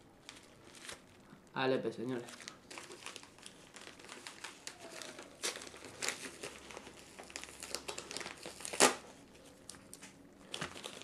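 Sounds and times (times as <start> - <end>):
paper envelope crinkling and tearing: 0.2 - 1.2, 2.1 - 11.0
paper ripping: 2.2 - 9.0.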